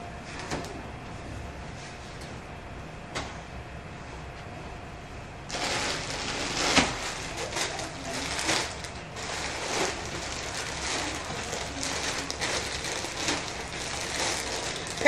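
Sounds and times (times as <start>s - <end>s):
plastic bag crinkling: 5.5s - 15.0s.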